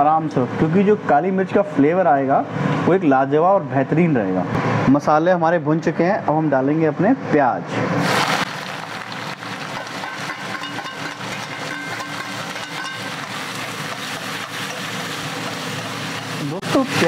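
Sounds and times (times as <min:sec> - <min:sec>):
onions sizzling in hot oil: 0:08.0 - 0:17.0
ladle scraping metal pan: 0:09.7 - 0:16.4.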